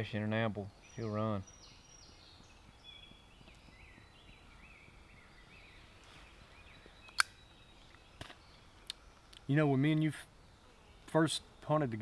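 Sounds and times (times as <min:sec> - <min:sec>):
songbird chirping and warbling: 0:00.0 - 0:12.0
woodland ambience: 0:00.0 - 0:12.0
sharp click: 0:07.1 - 0:07.4.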